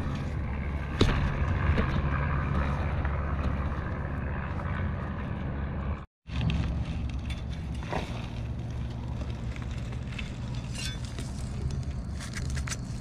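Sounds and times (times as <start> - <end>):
rustling in dry leaves: 6.3 - 13.0.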